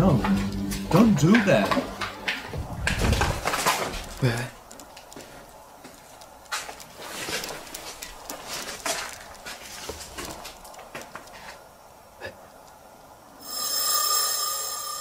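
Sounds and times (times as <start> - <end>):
rustling and handling clicks: 2.9 - 11.6.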